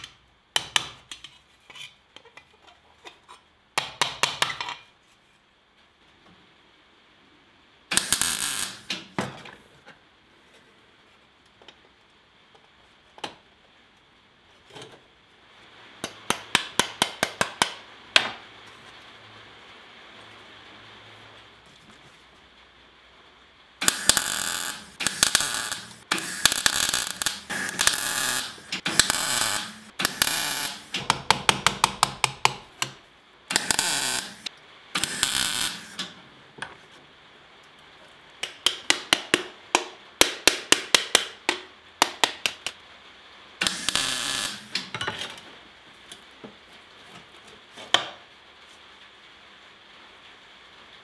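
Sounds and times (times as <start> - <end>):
welding arc crackling: 7.9 - 9.2, 23.8 - 36.2, 43.6 - 45.0.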